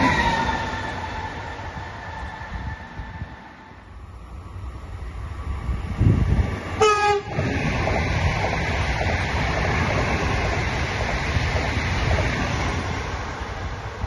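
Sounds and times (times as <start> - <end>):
train wheels rumbling on rails: 0.0 - 14.0
train horn blast: 6.8 - 7.3.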